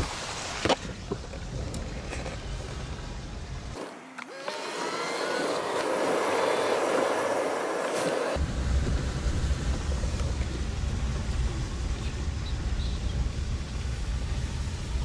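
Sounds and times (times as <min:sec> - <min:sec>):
tyres hissing on wet road: 0:04.6 - 0:15.0.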